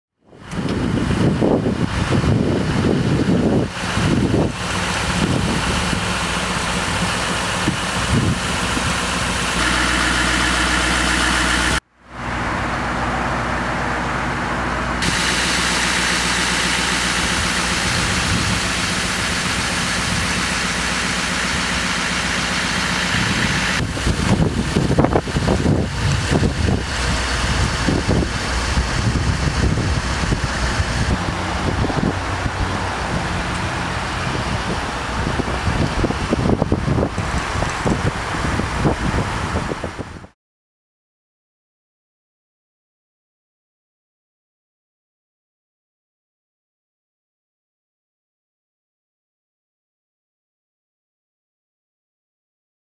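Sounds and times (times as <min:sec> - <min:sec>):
wind gusts on microphone: 0:00.3 - 0:09.6, 0:17.2 - 0:20.5, 0:23.0 - 0:40.4
truck engine idling: 0:00.3 - 0:40.1.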